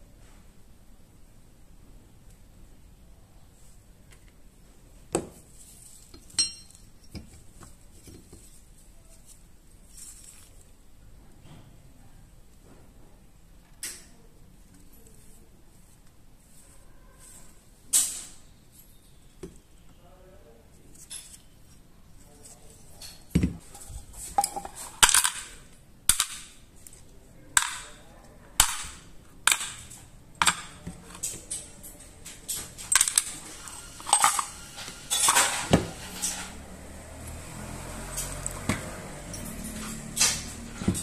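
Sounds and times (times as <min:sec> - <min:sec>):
small metal parts clinking: 0:06.1 - 0:07.2, 0:28.6 - 0:36.6.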